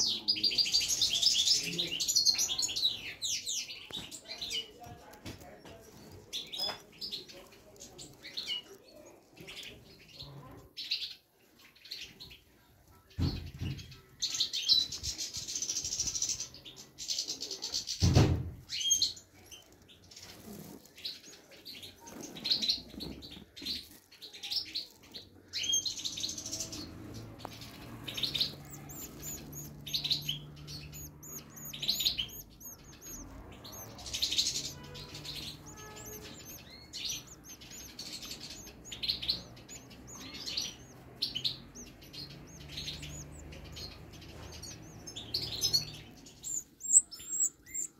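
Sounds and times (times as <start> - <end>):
chicks chirping begging calls: 24.9 - 47.9.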